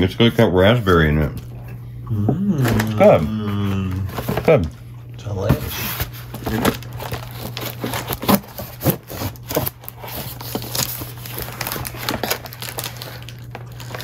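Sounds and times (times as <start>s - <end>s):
tape and cardboard crinkling: 5.5s - 14.0s.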